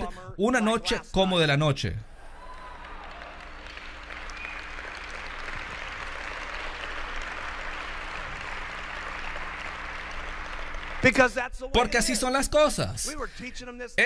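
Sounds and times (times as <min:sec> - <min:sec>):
audience applauding: 0:02.2 - 0:11.4.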